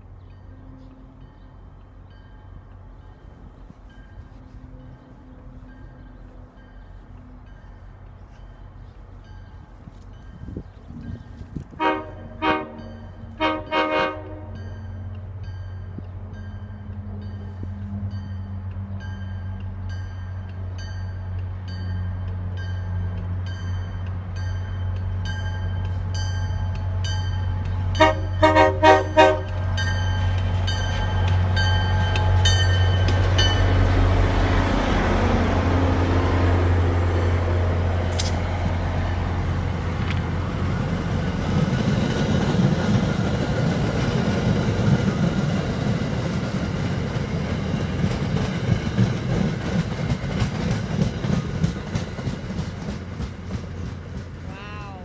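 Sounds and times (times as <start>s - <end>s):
train bell ringing: 0.0s - 11.6s, 12.7s - 34.0s
diesel locomotive engine drone: 0.0s - 55.0s
train coaches clattering on rails: 0.0s - 55.0s
train horn blasts: 11.8s - 14.8s, 27.9s - 29.8s.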